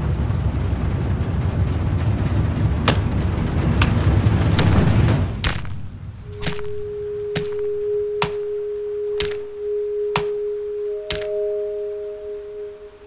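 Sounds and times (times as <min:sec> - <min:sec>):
low rumbling drone: 0:00.0 - 0:13.0
sharp cracking hits: 0:02.7 - 0:11.9.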